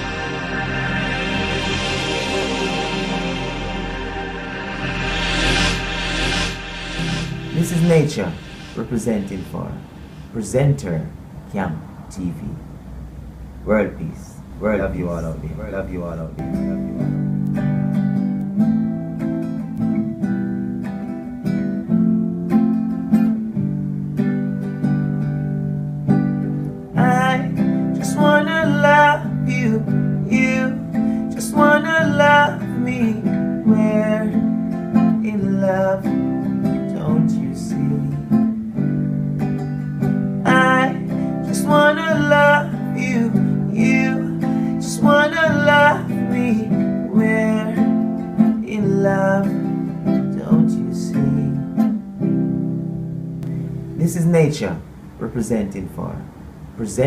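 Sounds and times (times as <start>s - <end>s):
acoustic guitar strumming: 0.0s - 11.4s, 16.1s - 54.1s
man singing: 27.0s - 34.4s, 35.2s - 36.2s, 36.8s - 38.3s, 40.4s - 51.8s.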